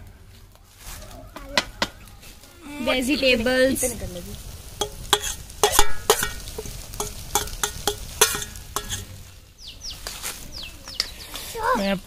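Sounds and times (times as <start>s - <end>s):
faint sizzle: 0.0s - 12.0s
metal spoon clinking on pan: 4.8s - 9.2s.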